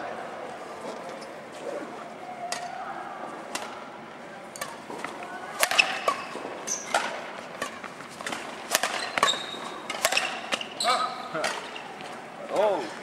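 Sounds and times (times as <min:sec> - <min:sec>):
rackets hitting shuttlecock: 0:02.4 - 0:02.8, 0:03.5 - 0:12.8
court shoes squeaking: 0:04.5 - 0:13.0.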